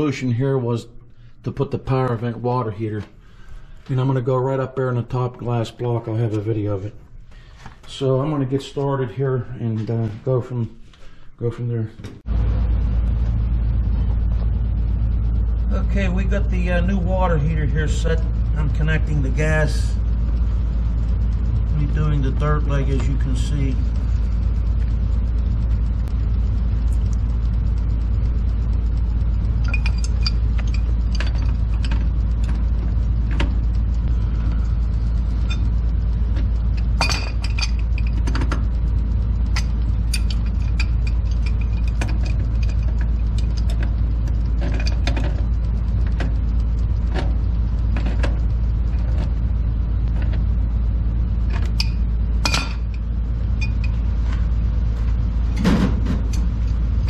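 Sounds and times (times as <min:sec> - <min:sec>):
steady low rumble: 0:00.0 - 0:57.0
metal clinks of pipe fittings: 0:29.6 - 0:32.6, 0:36.8 - 0:38.4, 0:39.5 - 0:43.8.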